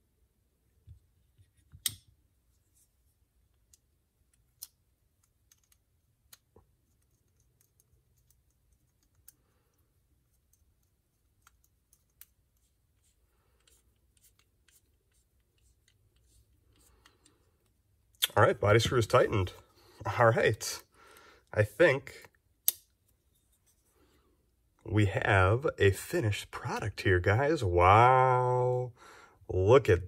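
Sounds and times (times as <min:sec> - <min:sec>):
soft handling rustle: 0:06.6 - 0:20.0, 0:23.0 - 0:24.8.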